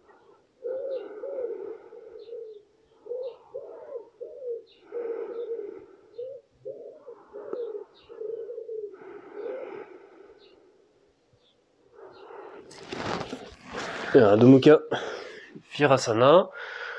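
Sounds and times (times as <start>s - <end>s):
pigeon cooing: 0.0s - 10.8s
small birds chirping: 0.0s - 15.9s.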